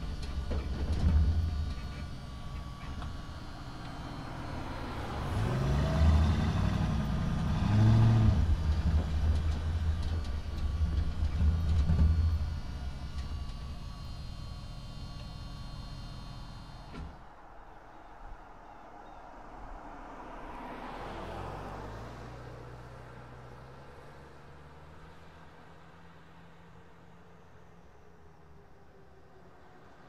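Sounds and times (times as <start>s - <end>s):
excavator diesel engine revving: 0.0s - 17.2s.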